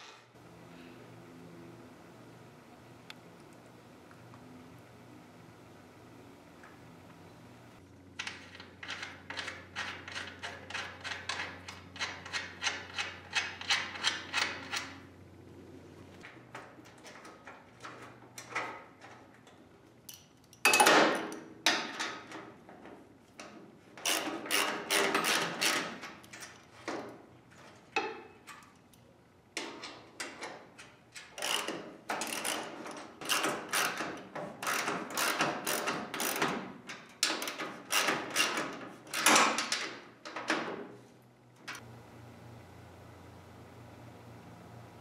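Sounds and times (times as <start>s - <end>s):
hand ratchet clicking: 24.0s - 25.8s, 31.2s - 36.5s, 37.2s - 39.4s.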